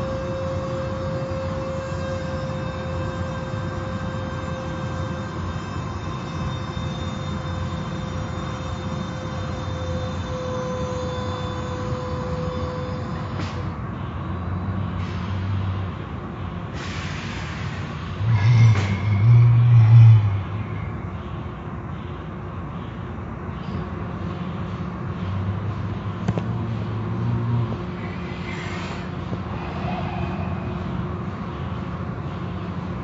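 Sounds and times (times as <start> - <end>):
car wash motor whine: 0.0 - 14.2
hissing bursts of spray: 16.8 - 18.1.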